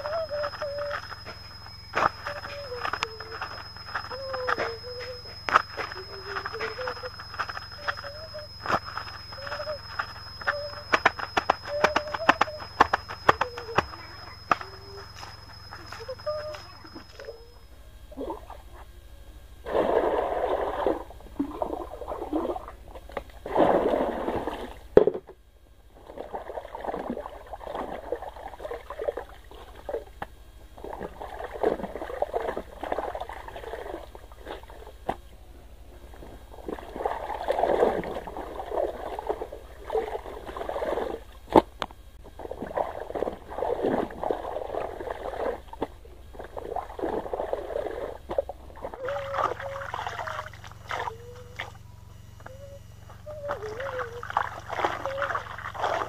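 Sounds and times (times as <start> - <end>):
wet cloth scrubbed with splashing: 42.4 - 51.7, 53.4 - 56.0.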